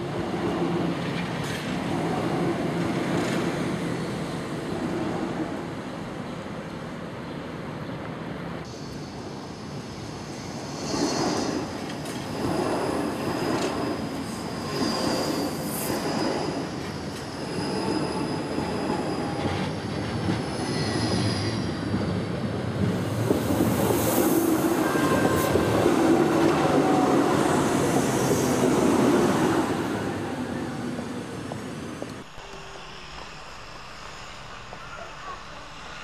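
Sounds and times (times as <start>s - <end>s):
train rumbling on rails: 0.0s - 36.0s
high wheel squeal: 10.6s - 19.8s.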